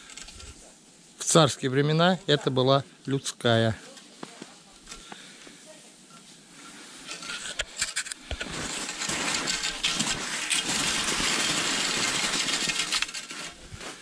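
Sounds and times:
skis crunching through snow: 0:03.5 - 0:14.0.

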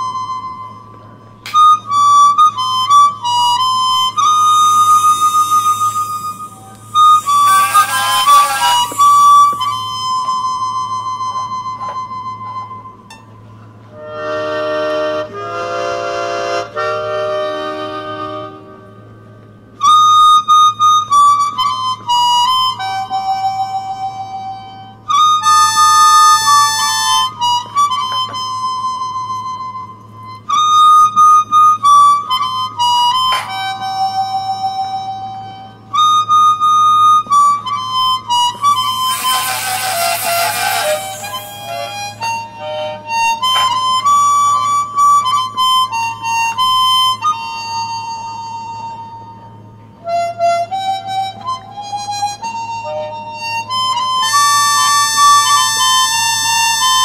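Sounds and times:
harmonica melody: 0:00.0 - 0:57.0
rotary tool grinding metal: 0:04.9 - 0:09.7, 0:38.6 - 0:42.2.

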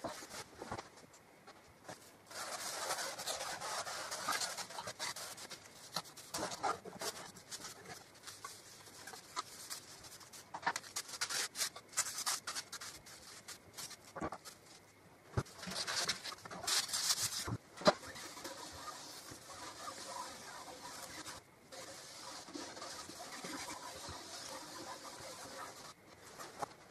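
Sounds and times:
wood scraping and rubbing: 0:02.3 - 0:14.6.

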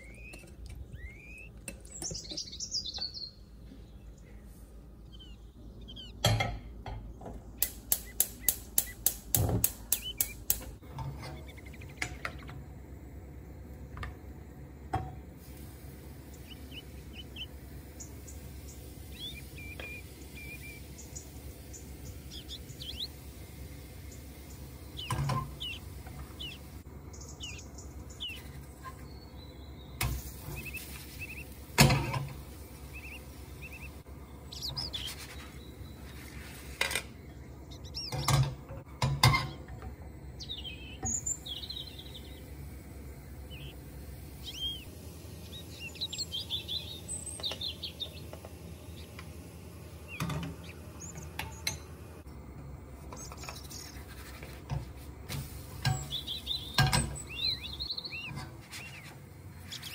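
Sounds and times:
bird chirps: 0:00.0 - 0:04.4, 0:05.0 - 0:06.3, 0:07.9 - 0:09.1, 0:09.8 - 0:10.6, 0:11.2 - 0:12.5, 0:16.2 - 0:36.5, 0:37.2 - 0:38.4, 0:40.4 - 0:42.6, 0:43.3 - 0:49.3, 0:49.9 - 0:51.9, 0:55.8 - 0:59.9
gas hob igniter clicking: 0:07.6 - 0:12.6.

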